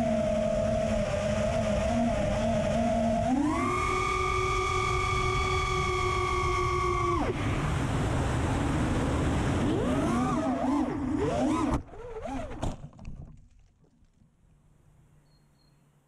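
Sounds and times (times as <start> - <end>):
drone motors whining: 0.0 - 7.8, 9.6 - 12.6
rush of air: 4.2 - 9.7.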